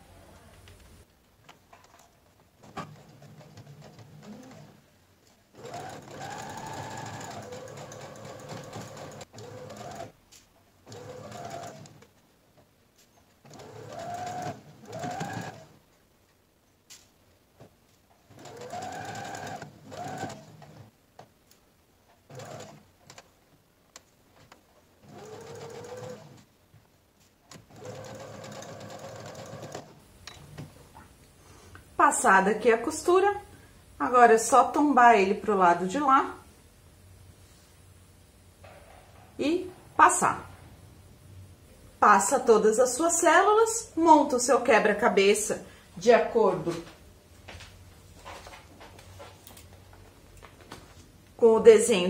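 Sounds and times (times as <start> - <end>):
sewing machine stitching: 2.6 - 4.8, 5.5 - 10.2, 10.8 - 12.1, 13.4 - 15.8, 18.3 - 20.9, 22.3 - 23.2, 25.0 - 26.5, 27.5 - 30.0.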